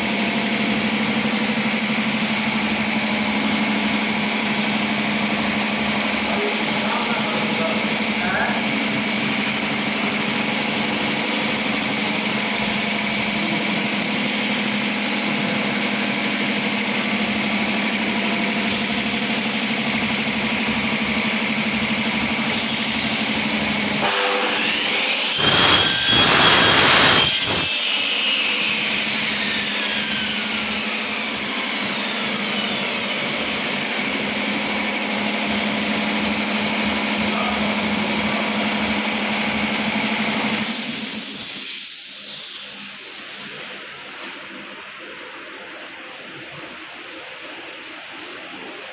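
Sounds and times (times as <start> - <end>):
saw blade whine spinning down: 0.0 - 39.5
workshop machinery humming: 0.0 - 48.9
hiss: 22.4 - 23.5, 25.3 - 27.8, 40.6 - 44.4
mitre saw cutting plastic: 24.6 - 32.6.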